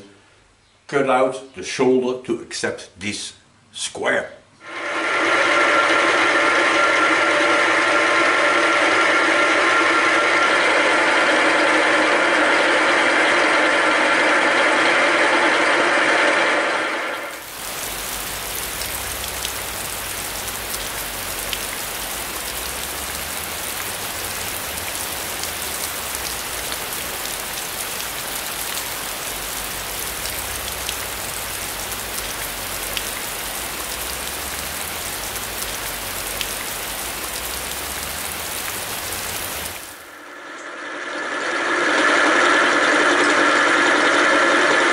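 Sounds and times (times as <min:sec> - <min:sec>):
loud machine sound: 0:04.6 - 0:44.9
low hum: 0:04.6 - 0:44.9
coolant splashing hiss: 0:17.3 - 0:40.2.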